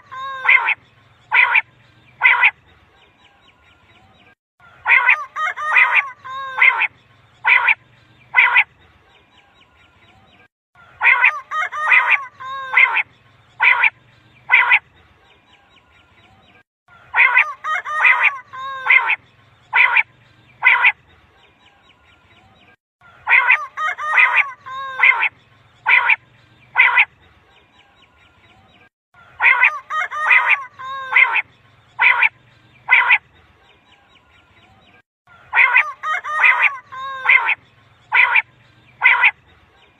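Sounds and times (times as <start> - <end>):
quail calling: 0.0 - 2.6, 4.7 - 8.7, 10.9 - 13.0, 13.6 - 14.8, 17.0 - 21.0, 23.1 - 27.1, 29.2 - 33.2, 35.3 - 39.4.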